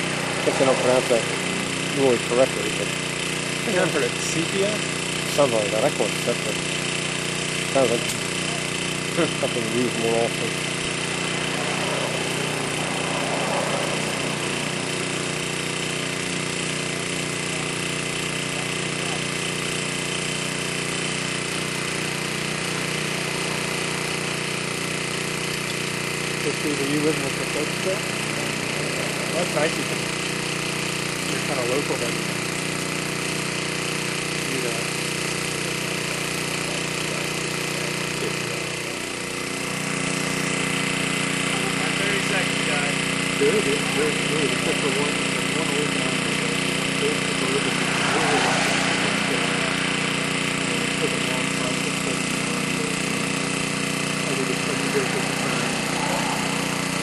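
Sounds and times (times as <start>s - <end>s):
low hum: 0.0s - 4.2s, 7.1s - 18.3s, 46.4s - 51.8s
steam hissing: 0.0s - 38.9s, 39.7s - 57.0s
motor running hum: 0.0s - 57.0s.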